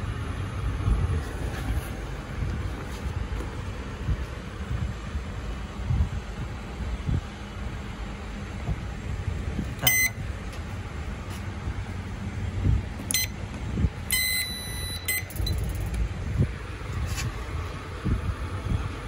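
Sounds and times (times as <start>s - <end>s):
low background rumble: 0.0s - 19.0s
oven control panel beeps: 9.8s - 10.2s, 13.1s - 13.4s, 14.1s - 15.7s.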